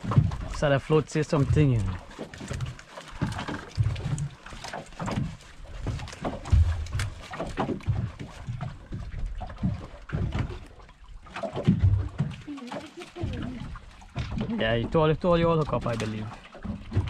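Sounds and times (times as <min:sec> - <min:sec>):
water slapping boat hull: 0:00.0 - 0:17.0
knocks and thumps: 0:01.5 - 0:10.7, 0:16.5 - 0:17.0.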